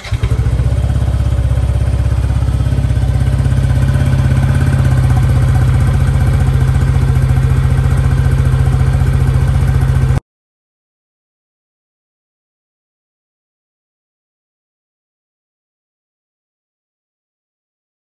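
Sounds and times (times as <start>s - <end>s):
scooter engine idling: 0.0s - 10.2s.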